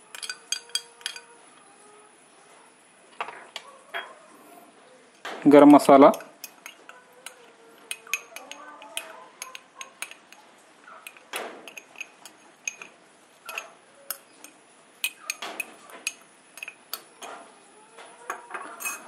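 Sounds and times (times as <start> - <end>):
metal spoon clinking on glass bowl: 0.0 - 1.4, 5.8 - 17.3, 18.3 - 19.0.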